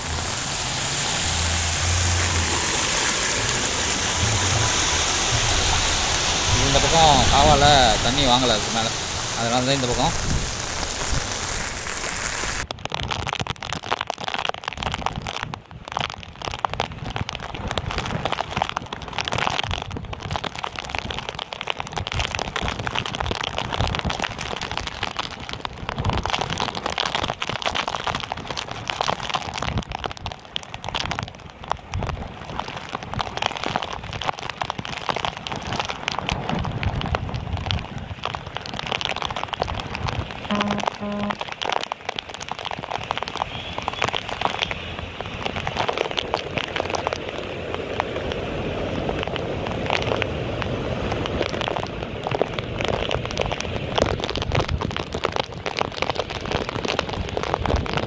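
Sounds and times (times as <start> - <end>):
waves crashing: 0.0 - 12.6
wind on microphone: 0.0 - 13.2, 22.0 - 41.3.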